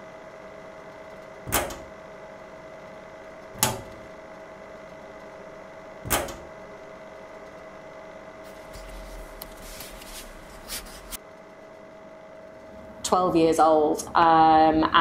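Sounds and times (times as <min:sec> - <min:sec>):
room hum: 0:00.0 - 0:15.0
soft rustling: 0:08.5 - 0:11.2.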